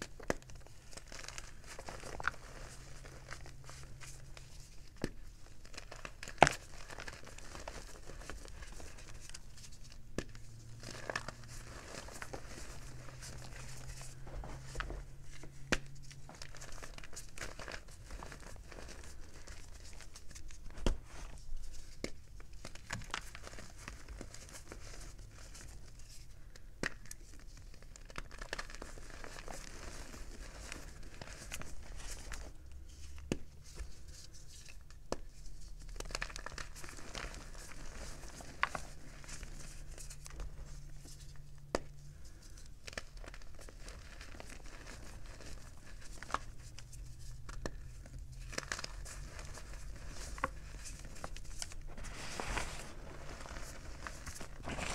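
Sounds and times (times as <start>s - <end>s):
chalk crunching in hand: 51.9s - 54.9s.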